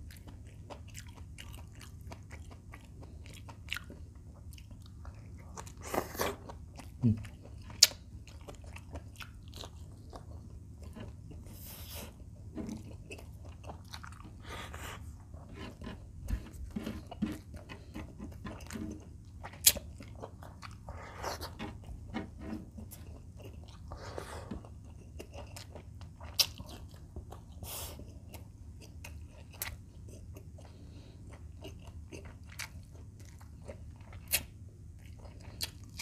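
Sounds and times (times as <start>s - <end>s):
chewing crunchy food: 0.0s - 36.0s.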